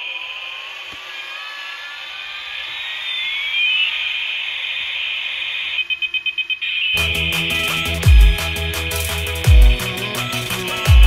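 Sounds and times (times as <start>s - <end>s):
toy electronic siren: 0.0s - 11.0s
electronic beeps: 1.3s - 8.4s.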